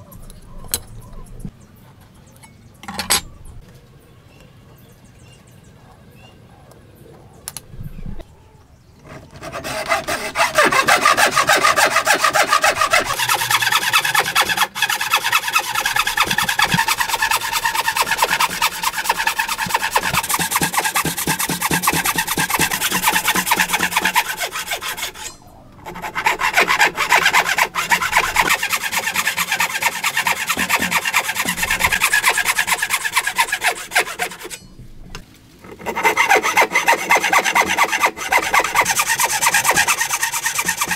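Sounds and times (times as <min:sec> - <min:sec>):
hand saw cutting wood: 0:09.0 - 0:34.6, 0:35.6 - 0:40.9.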